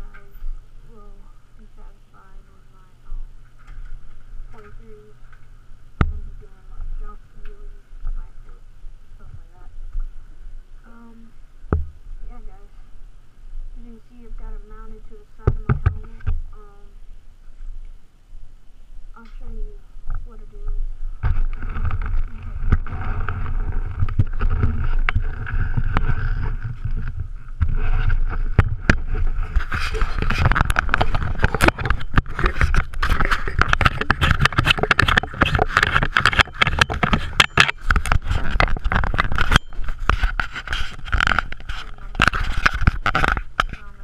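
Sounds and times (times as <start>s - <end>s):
camera handling rubbing and knocks: 21.2s - 43.9s.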